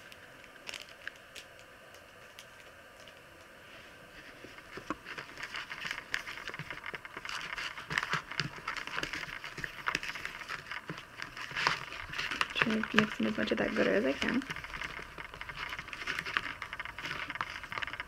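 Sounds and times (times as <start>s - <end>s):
slime being stirred in a bowl: 4.1s - 18.0s.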